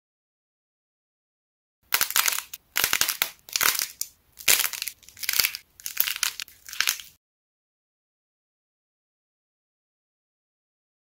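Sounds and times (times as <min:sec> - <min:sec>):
clay figure crackling: 0:01.9 - 0:07.2.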